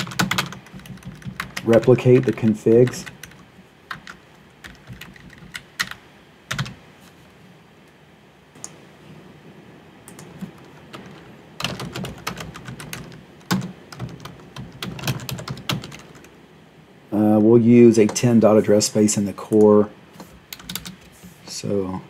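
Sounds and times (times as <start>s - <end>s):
typing on computer keyboard: 0.0s - 6.8s, 10.1s - 16.3s, 20.5s - 21.0s.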